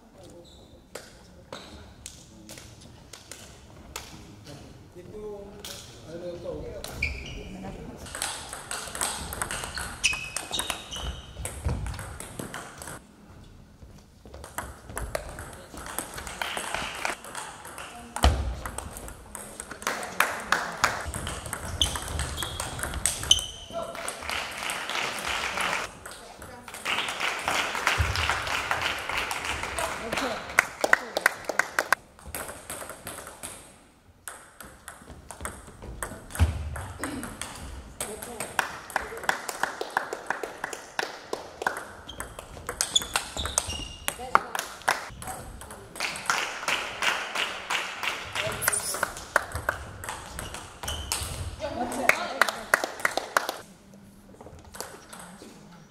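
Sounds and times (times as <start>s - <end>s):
table tennis balls clicking: 8.1s - 13.0s, 14.4s - 20.1s, 21.0s - 24.3s.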